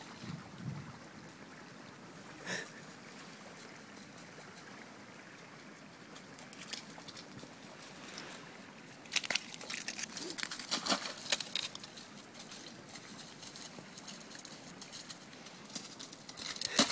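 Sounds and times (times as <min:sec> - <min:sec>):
footsteps crunching on ice and shale: 0:08.2 - 0:16.9.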